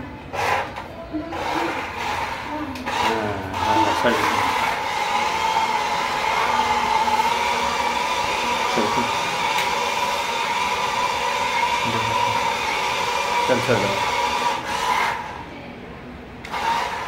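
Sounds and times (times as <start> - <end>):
toy car electric motor whining: 0.3 - 15.4, 16.5 - 17.0.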